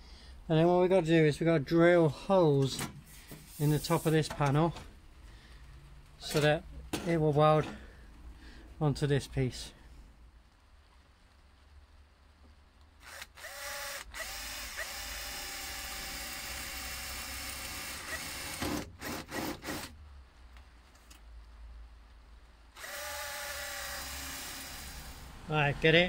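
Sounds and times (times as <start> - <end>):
cordless drill whining: 13.0 - 19.9, 22.8 - 25.3.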